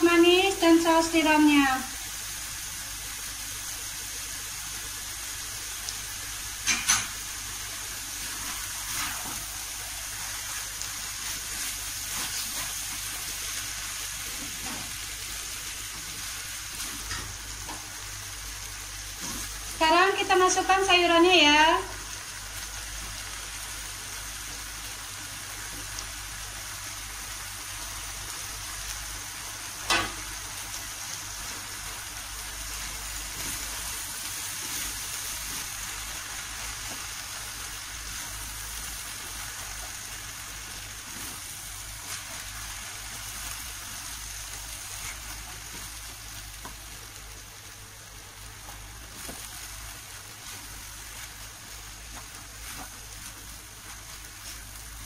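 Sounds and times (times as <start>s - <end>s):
food sizzling in a wok: 0.0s - 55.0s
spatula stirring in a wok: 6.4s - 19.8s, 31.4s - 47.7s, 48.4s - 55.0s.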